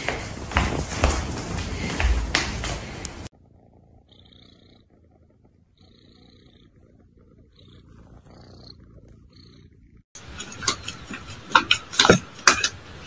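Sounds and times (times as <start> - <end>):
kitten purring: 3.3 - 11.4.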